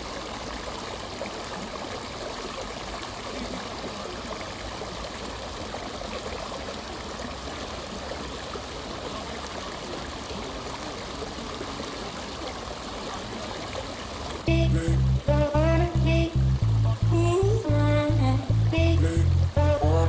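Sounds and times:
running water trickling: 11.0 - 20.0.

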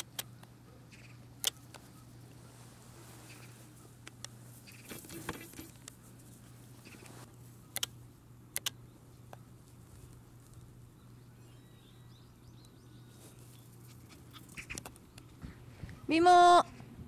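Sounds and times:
faint low hum: 0.0 - 17.0
rustle of dry grass: 1.8 - 7.6
sharp double clicks: 7.7 - 8.8
light clicks: 7.7 - 9.4.

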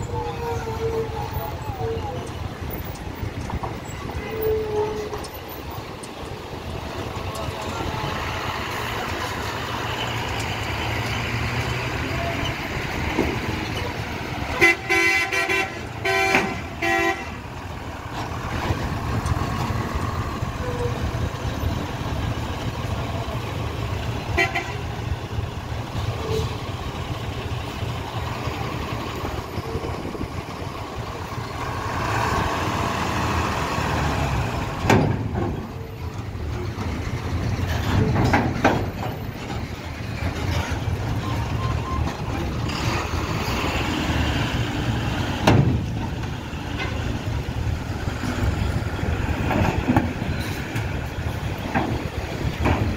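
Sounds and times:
truck engines running: 0.0 - 52.9
vehicle horn honking: 14.5 - 17.4, 24.4 - 24.9.

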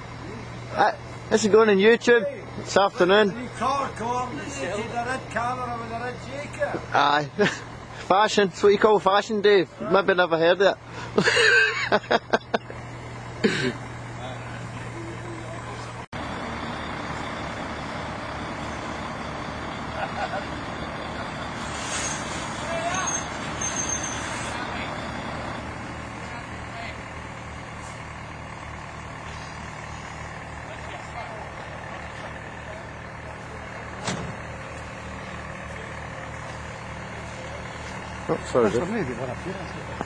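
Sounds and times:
crane engine rumbling: 0.0 - 40.0.

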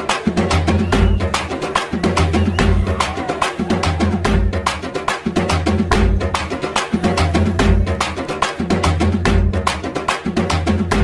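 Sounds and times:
music with fast drum beat: 0.0 - 11.0
heavy pulsing bass: 2.0 - 4.8, 5.4 - 9.7.

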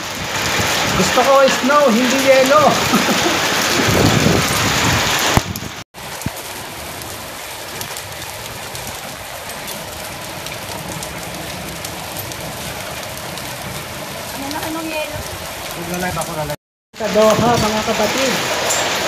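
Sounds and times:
hailstones ticking on concrete: 0.0 - 19.0
rain hissing on a roof: 0.0 - 19.0.

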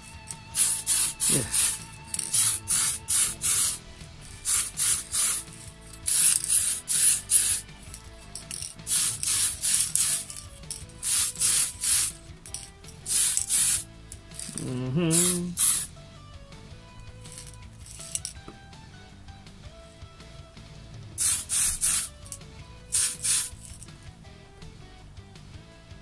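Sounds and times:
spray paint can hissing: 0.0 - 16.0, 17.2 - 18.4, 21.2 - 23.9.

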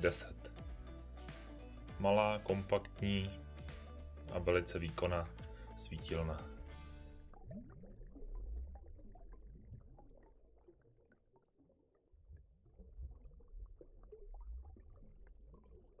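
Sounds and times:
underwater low rumble: 6.9 - 16.0.

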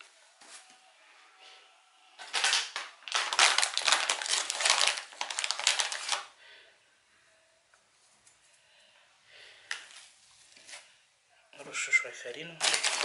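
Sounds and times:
thin plastic crinkling: 2.2 - 6.4, 12.6 - 13.0.

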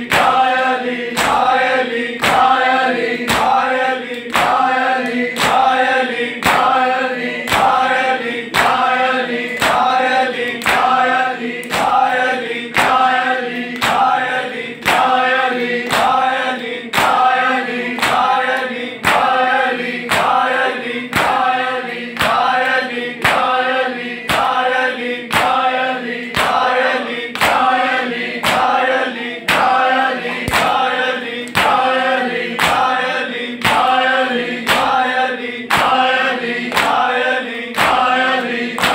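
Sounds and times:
men chanting: 0.0 - 38.9
hands slapping chests: 0.1 - 5.7, 7.4 - 7.8, 8.5 - 14.2, 21.1 - 21.6, 24.3 - 24.6, 25.3 - 26.7, 27.3 - 27.8, 28.4 - 28.8, 29.5 - 31.9, 32.6 - 32.9, 33.6 - 34.0, 34.6 - 35.0, 35.7 - 38.9.

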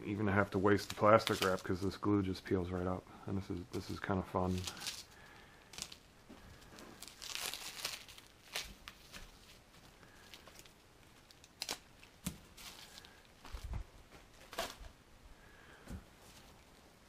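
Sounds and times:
scratchy rustling and tearing: 0.4 - 2.0, 3.7 - 14.9.

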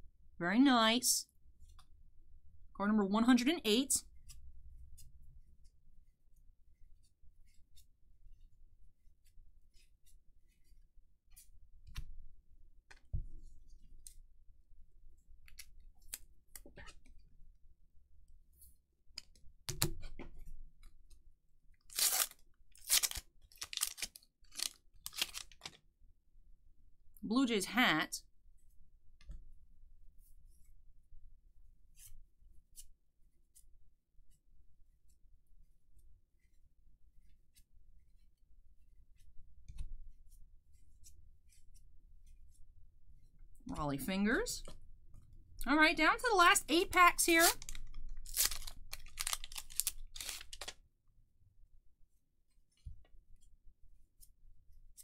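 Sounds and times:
cardboard cards being flipped: 21.9 - 25.8, 47.4 - 50.8.

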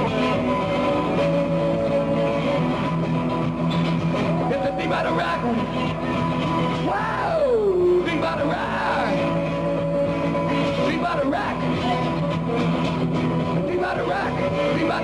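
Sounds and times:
live rock and roll guitar: 0.0 - 15.0
singer yelling: 4.2 - 5.7, 6.8 - 9.2.

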